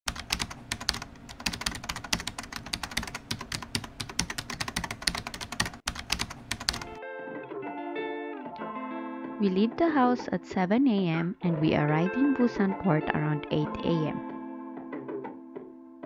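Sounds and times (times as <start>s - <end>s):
keyboard typing clicks: 0.1s - 7.0s
guitar music: 6.9s - 15.9s.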